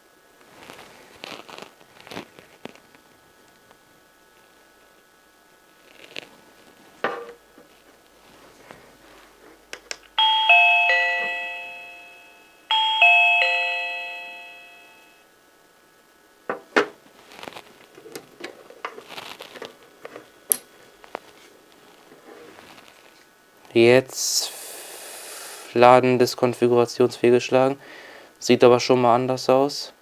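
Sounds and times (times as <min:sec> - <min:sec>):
descending three-note doorbell chime: 0:10.2 - 0:15.2.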